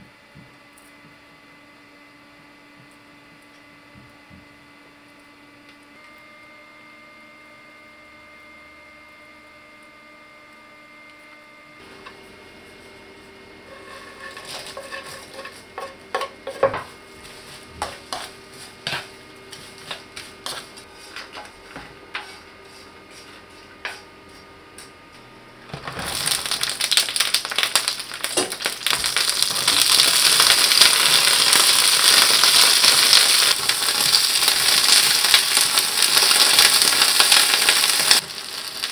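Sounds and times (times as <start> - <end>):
wooden spatula scraping frying pan: 13.6 - 24.4
peppers sizzling in oil: 13.6 - 24.8, 25.6 - 38.9.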